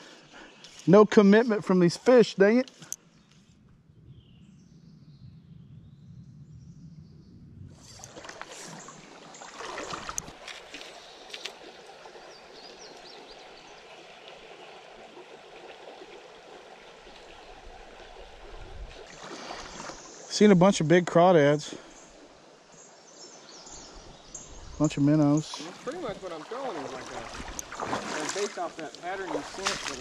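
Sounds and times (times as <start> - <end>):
low rumble: 3.7 - 7.9
water trickling and lapping: 7.7 - 20.4, 21.6 - 30.0
sharp splashes and clicks: 7.9 - 11.8, 25.5 - 30.0.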